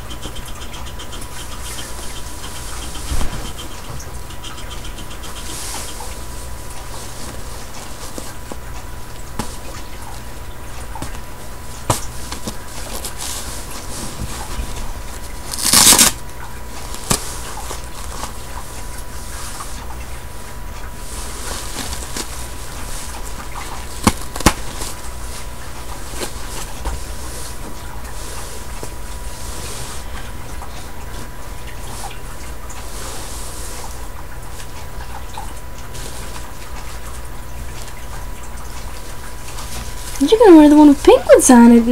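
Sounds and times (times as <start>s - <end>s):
steady electrical hum: 0.0s - 41.9s
soft rustling and handling: 1.5s - 41.9s
diaper crinkling rip: 15.4s - 16.2s, 23.6s - 25.0s.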